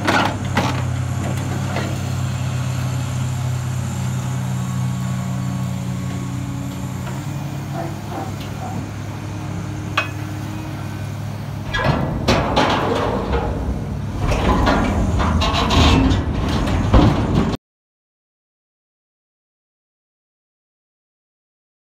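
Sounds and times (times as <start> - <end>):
excavator diesel engine running: 0.0 - 17.6
scrap metal crashing and clanging: 11.7 - 17.6.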